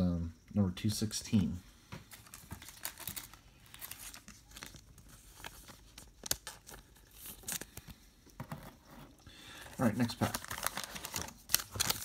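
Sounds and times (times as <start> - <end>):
trading cards being handled: 1.9 - 12.0
plastic wrapper crinkling: 2.1 - 8.0, 9.6 - 12.0.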